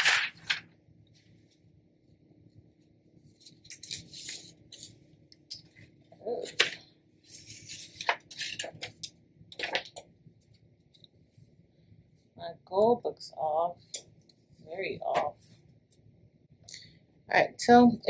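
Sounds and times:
paper rustling and crinkling: 0.0 - 1.6, 3.2 - 5.0, 5.6 - 10.0.

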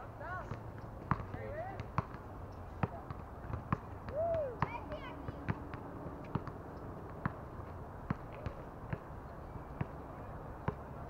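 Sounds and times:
balls bouncing on hard court: 0.3 - 9.1.

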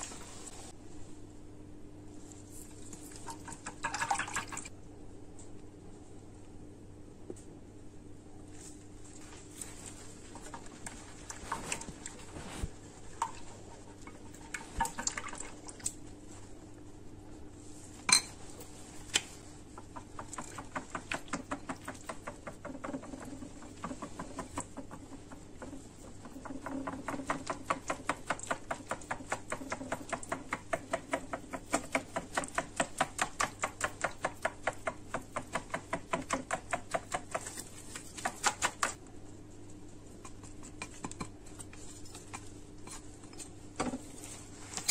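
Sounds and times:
whisk ticking against glass bowl: 19.8 - 37.4.

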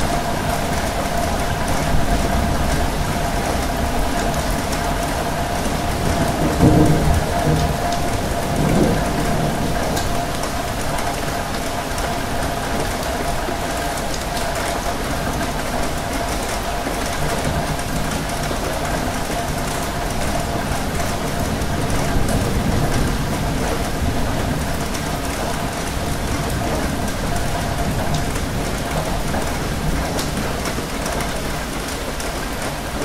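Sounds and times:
steady rain falling: 0.0 - 33.0.

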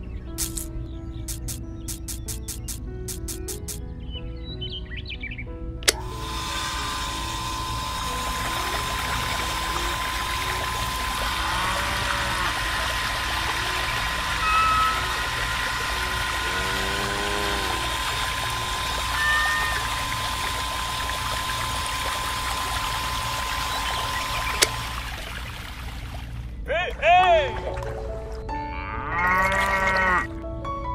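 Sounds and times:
electric water pump whining: 1.3 - 3.8, 5.8 - 26.6, 29.3 - 30.3
water pouring into a pool: 6.9 - 26.5, 29.4 - 29.9
short pitched calls: 13.8 - 20.6.

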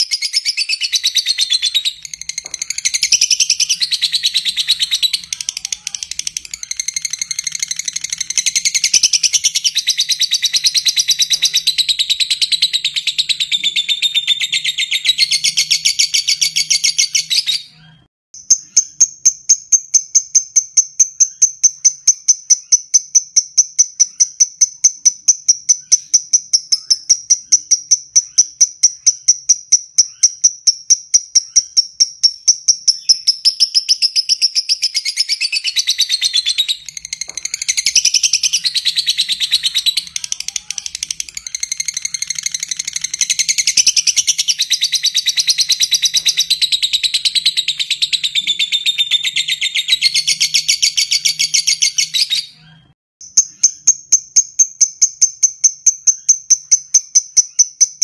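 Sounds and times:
bird chattering: 0.0 - 17.2, 34.6 - 52.6
rapid high bird chirps: 0.0 - 58.0.

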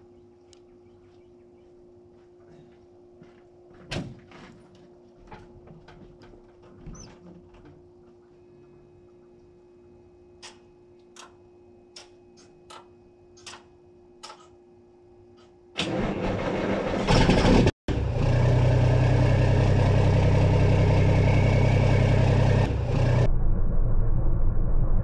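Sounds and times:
diesel engine starting and running: 15.8 - 25.0.

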